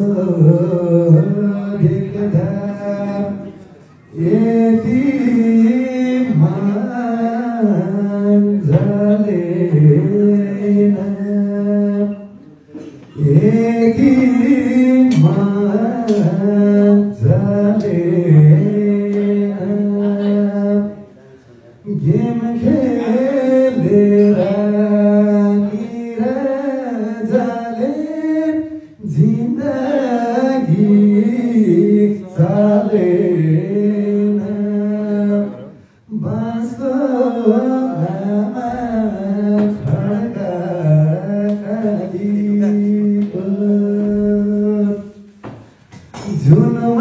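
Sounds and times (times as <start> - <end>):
man singing into a microphone: 0.0 - 21.2, 21.8 - 47.0.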